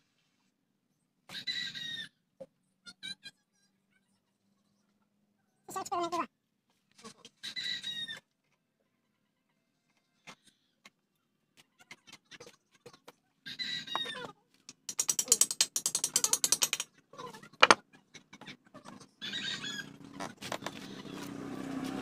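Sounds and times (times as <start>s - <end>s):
ratchet wrench clicking rapidly: 14.9s - 16.9s.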